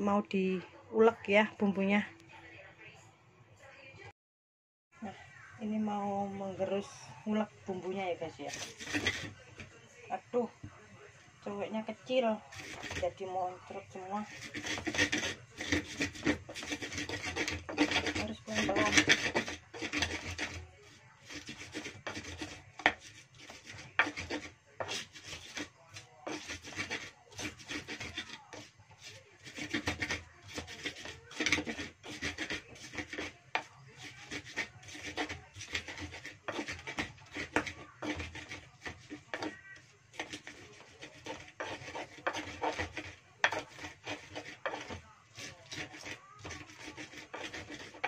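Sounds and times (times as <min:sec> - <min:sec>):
pestle grinding in mortar: 0:08.4 - 0:09.7, 0:12.5 - 0:48.0
pestle knocking on mortar: 0:12.6 - 0:13.0, 0:14.3 - 0:20.6, 0:21.3 - 0:25.7, 0:26.3 - 0:48.0.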